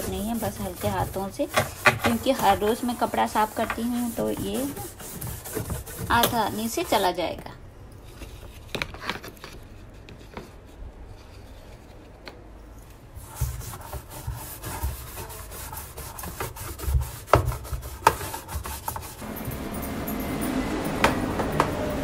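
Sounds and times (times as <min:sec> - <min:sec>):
brush scrubbing plastic tub: 0:00.0 - 0:07.3, 0:13.2 - 0:19.5.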